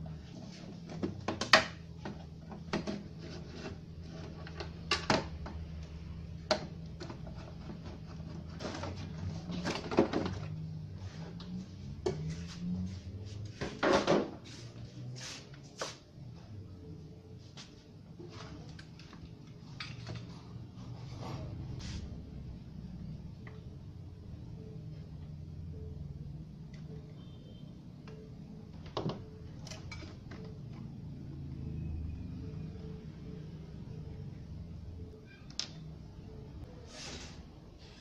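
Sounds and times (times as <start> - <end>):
plastic and metal rattles: 6.4 - 10.6.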